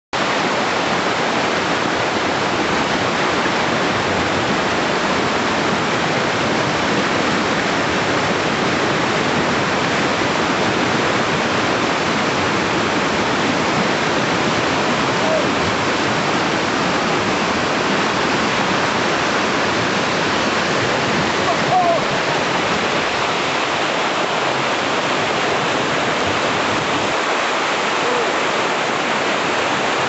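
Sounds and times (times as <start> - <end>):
river rapids rushing: 0.2 - 30.0.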